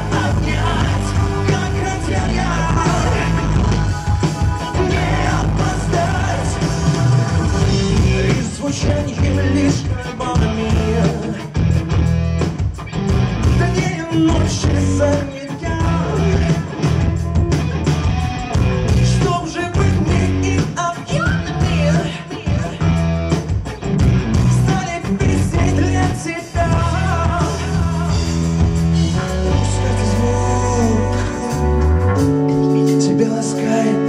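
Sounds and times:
man singing: 0:00.0 - 0:11.6, 0:13.5 - 0:16.9, 0:19.0 - 0:23.0, 0:24.4 - 0:34.0
heavy bass beat: 0:00.0 - 0:12.4, 0:13.0 - 0:20.6
live pop-rock band music: 0:00.0 - 0:34.0.

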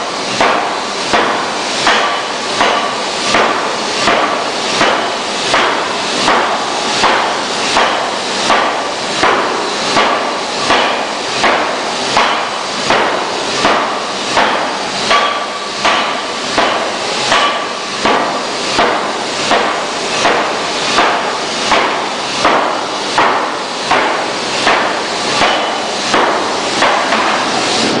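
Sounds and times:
forging hammer striking steel: 0:00.2 - 0:28.0.

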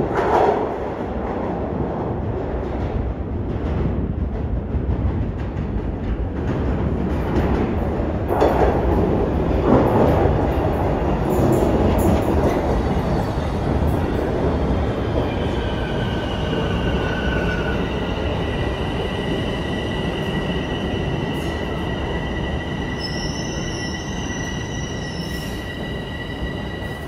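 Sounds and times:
subway train wheels rumbling: 0:00.0 - 0:27.0
high-pitched brake squeal: 0:22.6 - 0:27.0.

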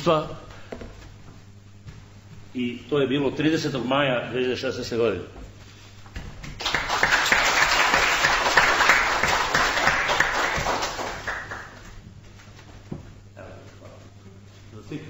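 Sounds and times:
audience applauding: 0:06.6 - 0:11.9.

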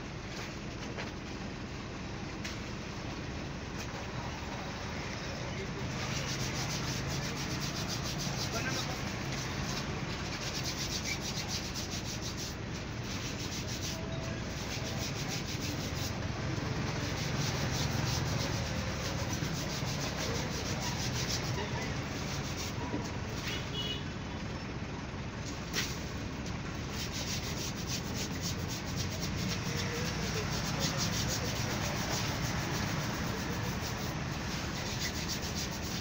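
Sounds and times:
rough rubbing noise: 0:05.8 - 0:23.7, 0:26.8 - 0:36.0.

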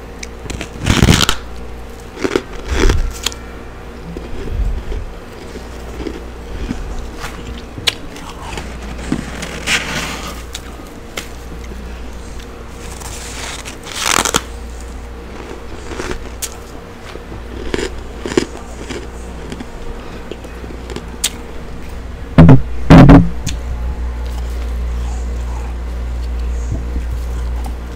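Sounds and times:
steady low hum: 0:00.0 - 0:27.9
frost crunching in mouth: 0:00.2 - 0:03.4, 0:04.1 - 0:11.7, 0:12.4 - 0:21.4.

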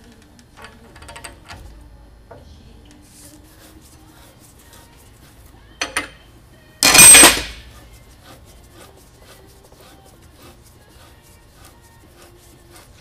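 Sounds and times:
loud metal clank with ringing: 0:06.8 - 0:07.6.

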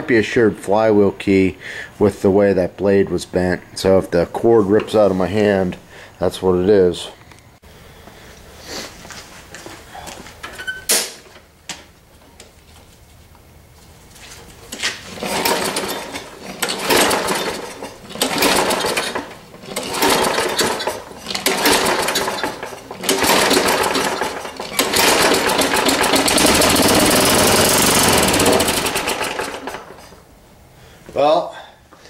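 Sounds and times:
mower engine running: 0:15.0 - 0:30.2
recoil starter cranking engine: 0:15.0 - 0:30.2.

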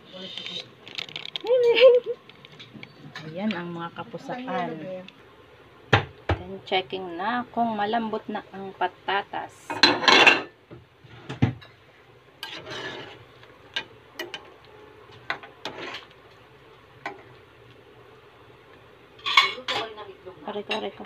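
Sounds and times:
broth boiling: 0:00.0 - 0:21.0
metal spoon scraping a pot: 0:12.4 - 0:13.2, 0:15.6 - 0:16.1.

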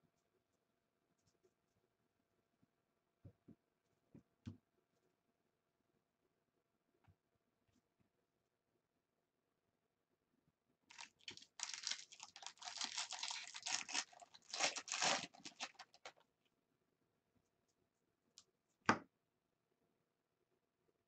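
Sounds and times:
foil wrapper tearing and crinkling: 0:10.9 - 0:16.2.

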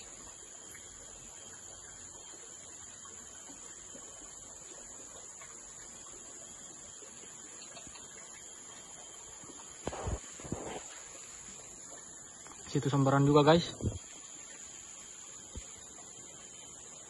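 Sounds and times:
insects buzzing: 0:00.0 - 0:17.0.

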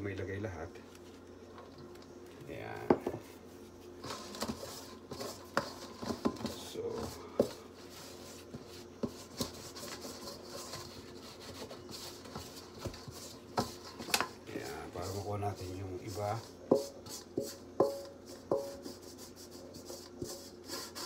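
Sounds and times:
spoon stirring dough in bowl: 0:02.8 - 0:21.0.

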